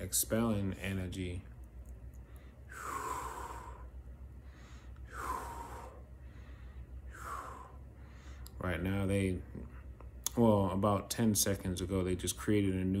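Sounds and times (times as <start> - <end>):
person breathing heavily: 2.2 - 8.6.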